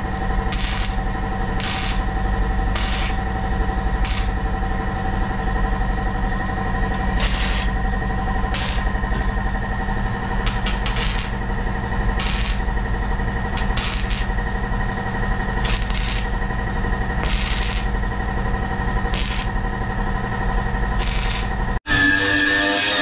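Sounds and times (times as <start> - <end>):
welding arc crackling: 0.0 - 4.6, 6.8 - 21.8
electrical hum: 0.0 - 22.1
short welding hisses: 12.2 - 12.6, 21.0 - 21.5.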